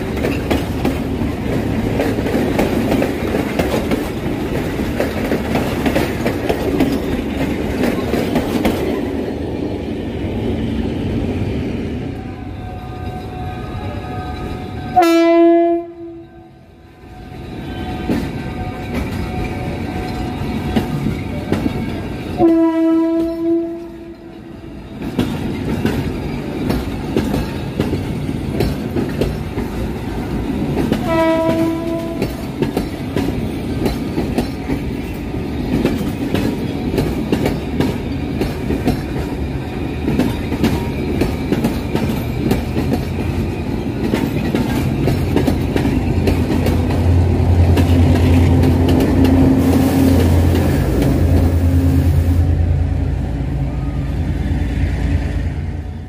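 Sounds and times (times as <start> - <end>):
wheels clicking over rail joints: 0.0 - 9.3, 18.0 - 51.5
train coaches rumbling past: 0.0 - 56.0
train horn blasts: 12.2 - 21.5, 22.3 - 24.6, 31.0 - 32.4.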